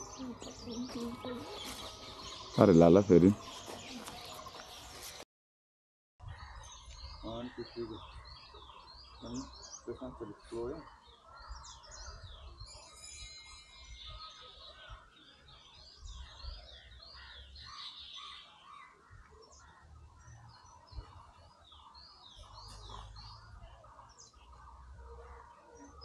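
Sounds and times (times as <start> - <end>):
small birds chirping: 0.0 - 5.2, 6.2 - 26.0.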